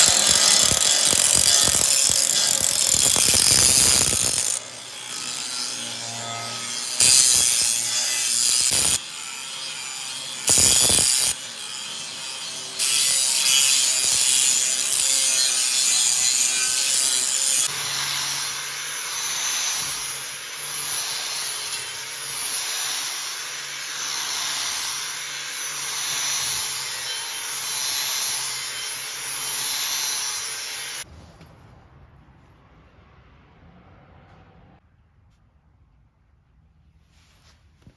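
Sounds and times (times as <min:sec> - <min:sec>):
angle grinder grinding metal: 0:00.0 - 0:31.1.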